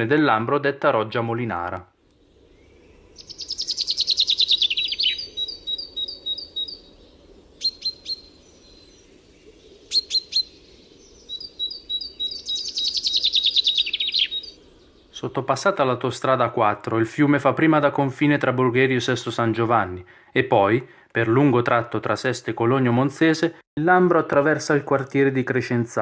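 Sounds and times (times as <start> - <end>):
songbird singing trills: 2.2 - 16.1.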